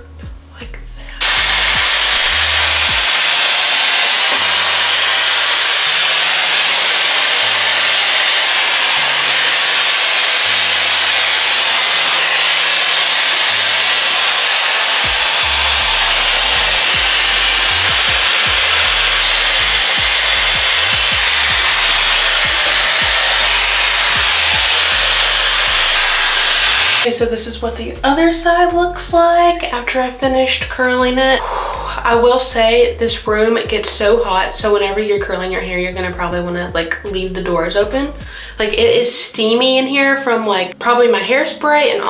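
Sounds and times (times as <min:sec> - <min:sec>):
background music with bass line: 0:00.0 - 0:03.3, 0:15.0 - 0:39.0
air styler fan hissing: 0:01.0 - 0:27.1.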